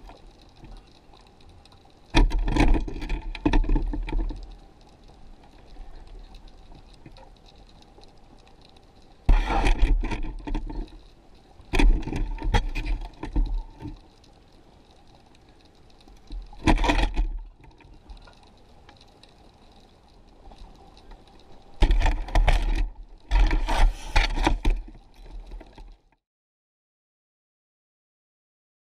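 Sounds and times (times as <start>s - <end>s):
underwater water surges: 0.0s - 26.0s.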